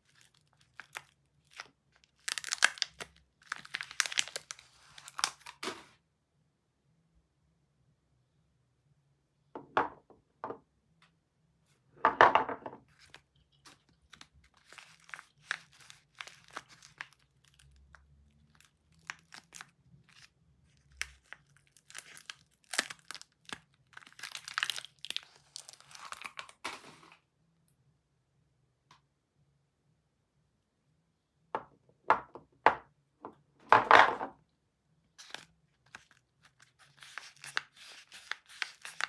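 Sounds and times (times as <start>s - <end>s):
soap wrapper tearing and crinkling: 0.0s - 5.7s, 12.9s - 26.9s, 35.2s - 39.0s.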